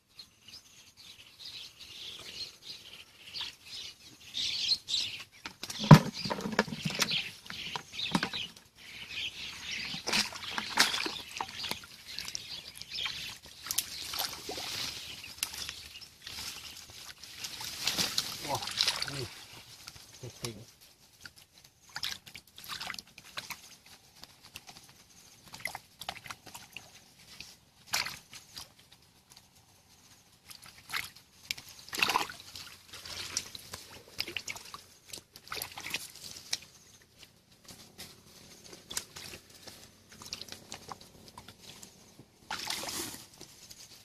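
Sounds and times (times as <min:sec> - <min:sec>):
hands splashing in shallow water: 0:09.9 - 0:15.7, 0:17.6 - 0:19.4, 0:27.9 - 0:28.7, 0:30.6 - 0:36.7, 0:42.5 - 0:43.0.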